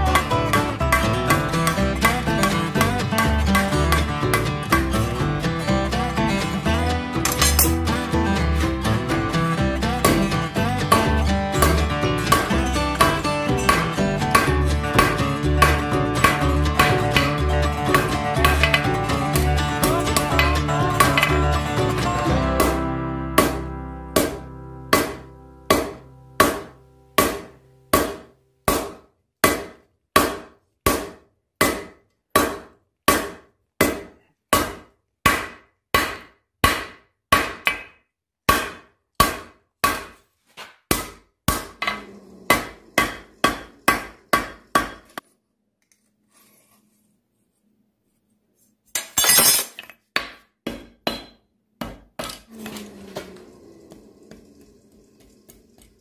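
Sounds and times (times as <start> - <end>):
hammer striking steel on anvil: 7.2 - 7.8, 23.4 - 31.0, 31.6 - 40.1, 40.9 - 45.2, 49.0 - 52.4.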